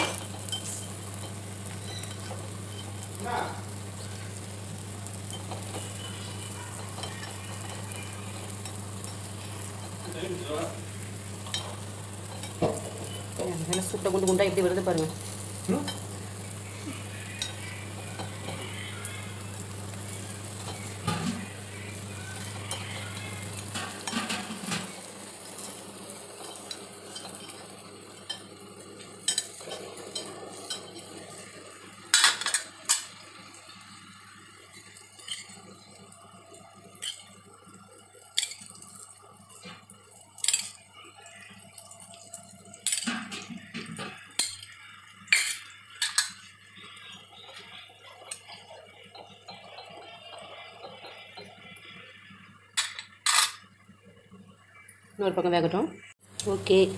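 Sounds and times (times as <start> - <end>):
utensils clinking on metal pan: 0.0 - 2.8, 5.2 - 10.3, 11.3 - 16.2, 22.6 - 25.0, 25.6 - 31.5, 32.1 - 33.2, 34.8 - 35.8, 36.9 - 37.4, 38.2 - 39.8, 40.4 - 40.9, 41.8 - 51.6, 52.8 - 53.7
oil sizzling: 0.0 - 56.9.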